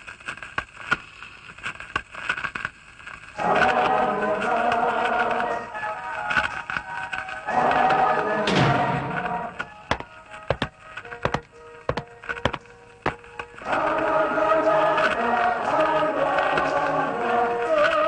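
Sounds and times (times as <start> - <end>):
film soundtrack music: 3.4 - 18.0
sharp clicks and knocks: 6.3 - 13.8.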